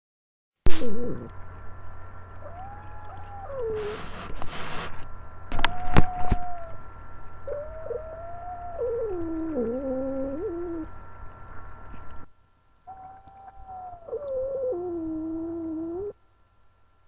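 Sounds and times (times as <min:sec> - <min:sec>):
cat growling yowls: 0:02.4 - 0:04.0, 0:05.6 - 0:06.8, 0:07.5 - 0:10.9, 0:12.9 - 0:16.2
cat hissing: 0:02.4 - 0:05.0.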